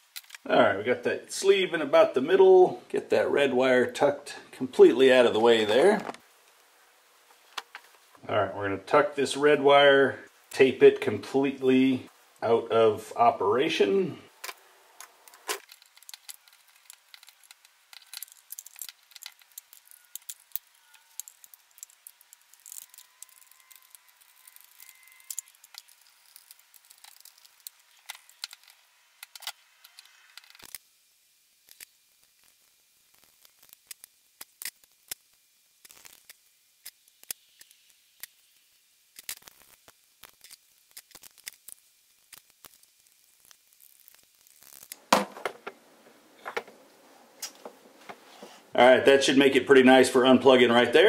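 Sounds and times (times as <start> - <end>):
clicks and rattles of wires: 0.1 - 0.5, 14.4 - 30.8.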